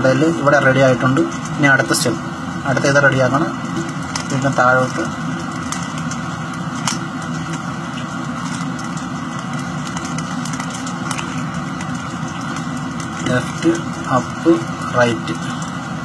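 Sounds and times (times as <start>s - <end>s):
steady background hum: 0.0s - 16.0s.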